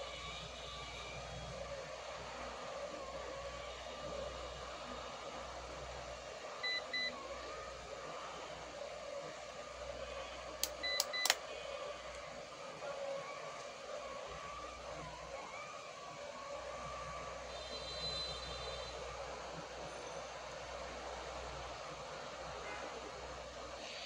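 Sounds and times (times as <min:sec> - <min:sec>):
sharp clicks: 0:10.6 - 0:11.4.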